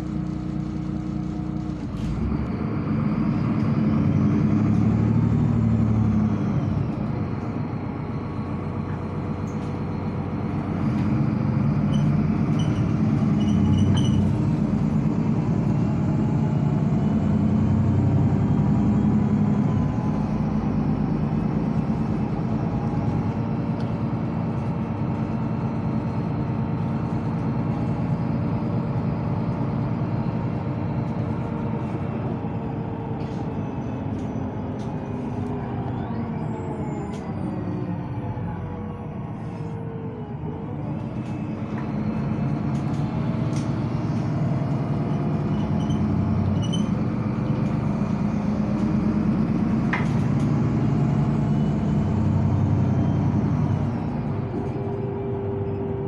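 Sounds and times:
bus drivetrain running: 0.0s - 56.0s
high drivetrain whine: 0.0s - 56.0s.

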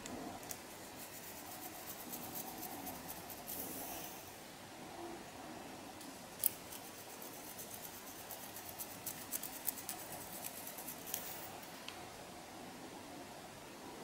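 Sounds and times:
comb scratching through hair: 0.5s - 3.8s, 6.4s - 11.5s.

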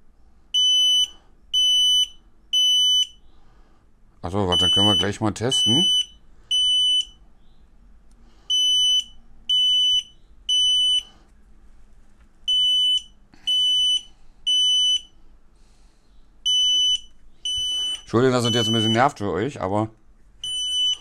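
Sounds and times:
smoke alarm beeping: 0.6s - 3.2s, 4.4s - 7.2s, 8.5s - 11.1s, 12.5s - 15.2s, 16.4s - 19.2s, 20.4s - 21.0s.

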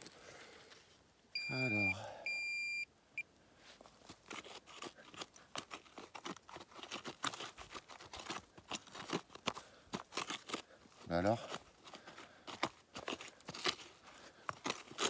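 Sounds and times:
metal detector signal tone: 1.4s - 2.8s
soil crunching being dug: 3.5s - 15.0s.

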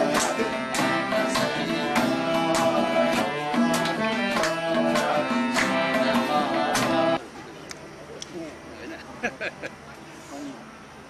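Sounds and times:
acoustic guitar strumming: 0.0s - 7.2s.

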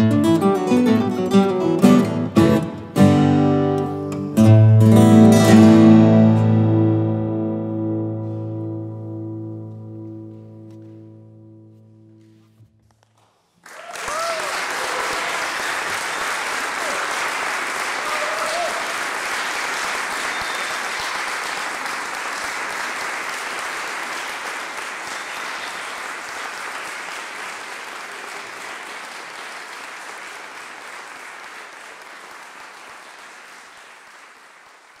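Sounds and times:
audience applauding: 13.0s - 35.0s.

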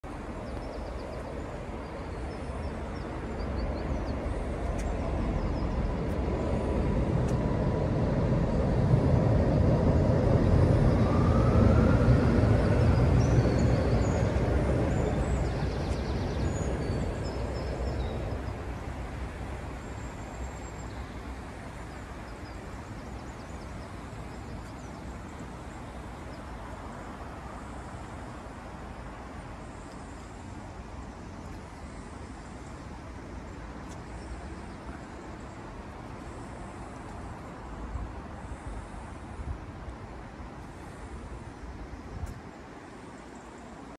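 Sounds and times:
train rumbling over bridge: 0.1s - 29.7s
faint rising whine: 0.2s - 39.8s.

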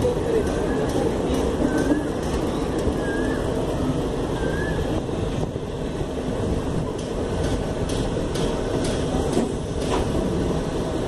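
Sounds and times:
wheels clicking over rail joints: 0.0s - 3.8s, 6.6s - 10.4s
train wheels rumbling on rail: 0.0s - 11.0s.

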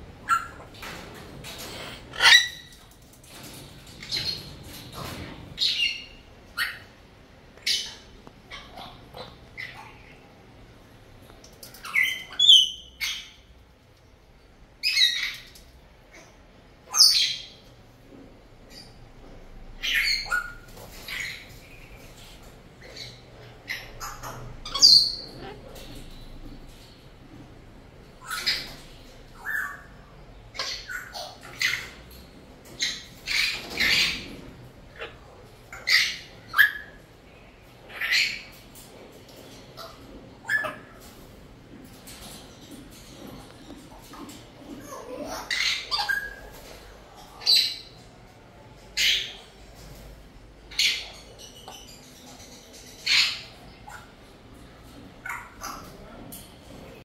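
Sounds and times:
cockatoo squawking: 1.6s - 2.8s.

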